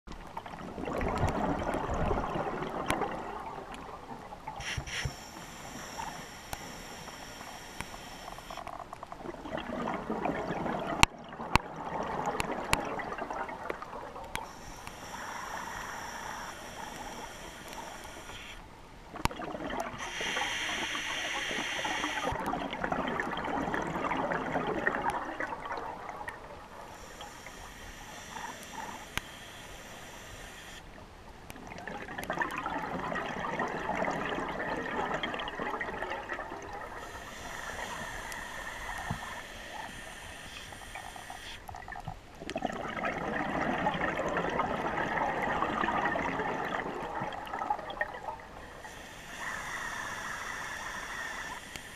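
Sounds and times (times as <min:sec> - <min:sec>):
regulator hissing inhalation: 0:04.6 - 0:08.6, 0:14.4 - 0:18.6, 0:20.0 - 0:22.4, 0:26.9 - 0:30.8, 0:37.0 - 0:41.6, 0:48.8 - 0:51.9
bubbling exhalation underwater: 0:41.8 - 0:48.4.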